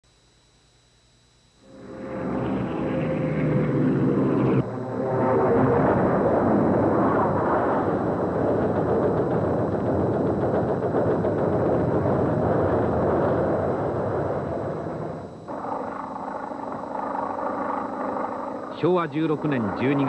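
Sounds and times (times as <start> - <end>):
explosions: 2.3 - 15.2.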